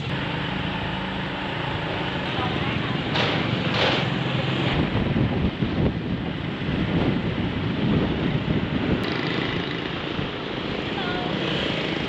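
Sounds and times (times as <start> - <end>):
motorbike engine: 0.0 - 12.0
road noise: 0.0 - 12.0
wind buffeting microphone: 2.1 - 12.0.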